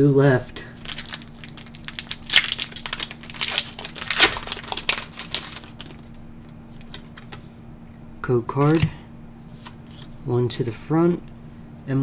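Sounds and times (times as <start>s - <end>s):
foil wrapper crinkling and ripping: 0.8s - 6.2s.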